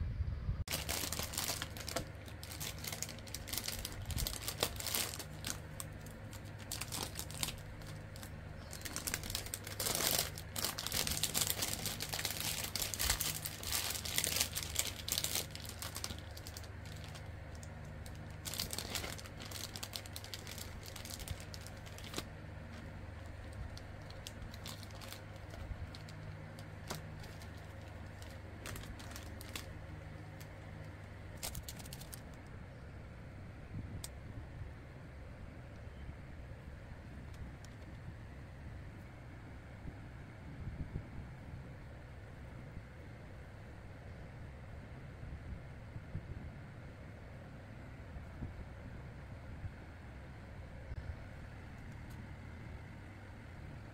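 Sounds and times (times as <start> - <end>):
steady low hum: 0.0 - 53.9
crinkling plastic and paper wrappers: 0.7 - 32.4.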